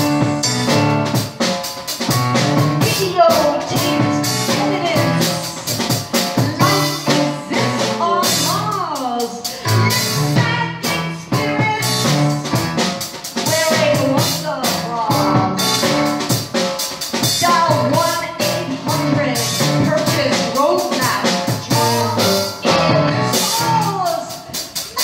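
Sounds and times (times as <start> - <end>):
drum kit and cymbals: 0.0 - 25.0
woman singing into microphone: 6.4 - 12.2, 13.5 - 15.5, 17.4 - 25.0.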